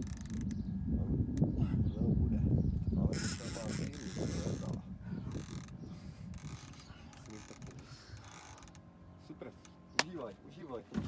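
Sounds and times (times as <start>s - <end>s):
fishing reel clicking and whirring: 0.0s - 0.7s, 3.0s - 8.9s.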